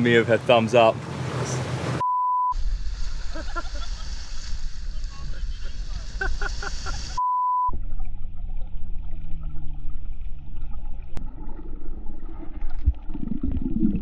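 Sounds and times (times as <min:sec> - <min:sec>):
short beep: 0:02.0 - 0:02.6, 0:07.2 - 0:07.8
underwater low rumble: 0:02.0 - 0:14.0
gurgling bubbles: 0:07.7 - 0:14.0.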